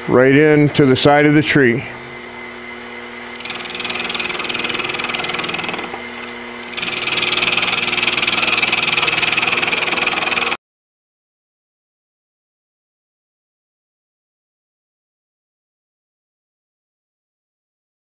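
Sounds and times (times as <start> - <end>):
gouge cutting spinning wood: 3.3 - 10.6
lathe humming: 3.3 - 10.6.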